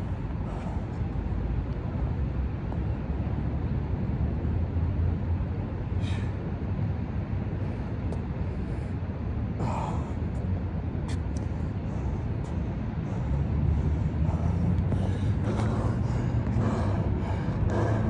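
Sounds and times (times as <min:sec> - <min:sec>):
low rumble: 0:00.0 - 0:18.0
person breathing hard: 0:00.3 - 0:01.2, 0:06.0 - 0:06.5, 0:07.6 - 0:10.4, 0:11.5 - 0:18.0.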